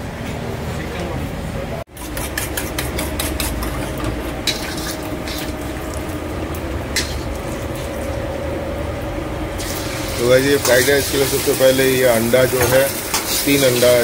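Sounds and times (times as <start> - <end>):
steady low hum: 0.0 - 11.4
ladle scraping and clinking in wok: 2.0 - 6.0, 6.9 - 8.0, 9.6 - 14.0.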